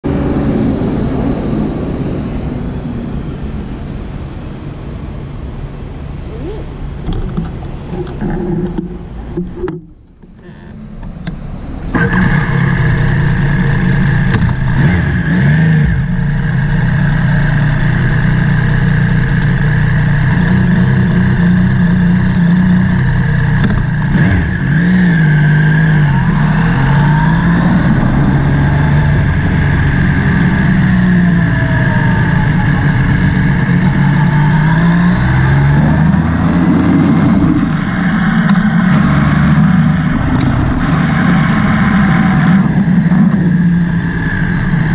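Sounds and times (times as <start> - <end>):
road and wind noise: 0.0 - 44.9
motorcycle engine revving: 11.6 - 44.9.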